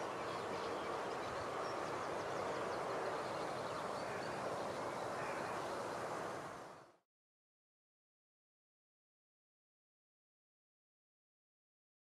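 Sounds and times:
faint high bird chirps: 0.0s - 6.0s.

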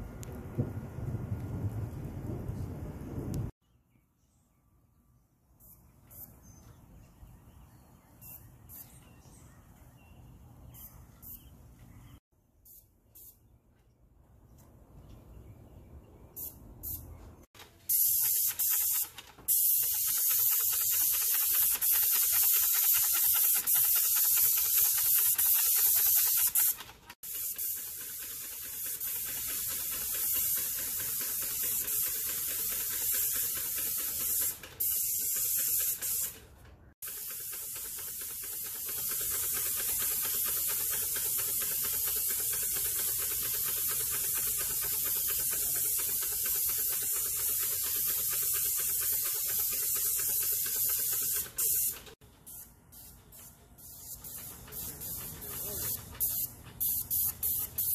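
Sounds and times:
paint spray gun hissing: 17.6s - 57.9s.

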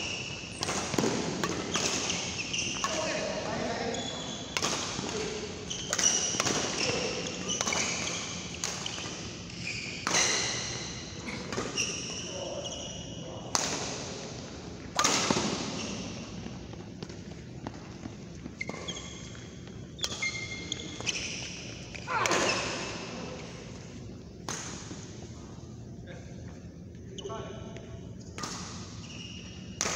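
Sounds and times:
rackets hitting shuttlecock: 0.2s - 3.3s, 4.5s - 11.9s, 14.9s - 16.0s
shoes squeaking on floor: 1.7s - 13.4s, 15.8s - 22.9s, 29.0s - 29.7s.

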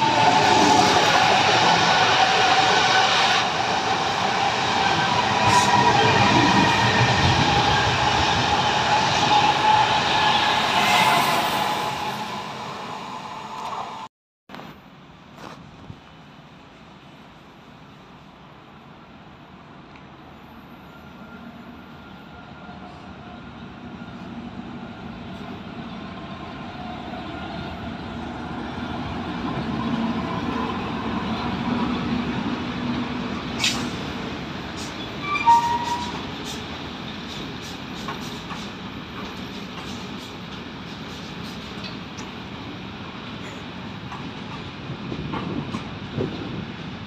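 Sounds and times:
brief wheel squeal: 34.8s - 36.3s.

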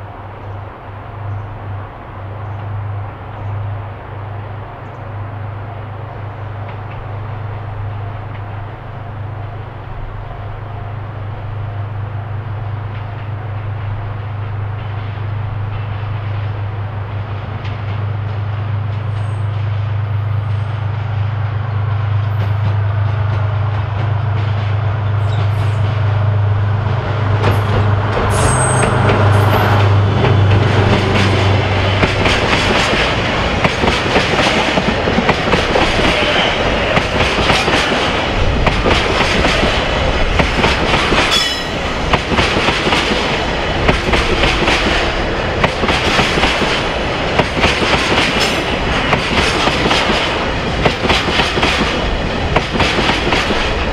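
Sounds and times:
locomotive engine drone: 19.9s - 51.0s
train wheels clattering on rails: 26.9s - 53.9s.

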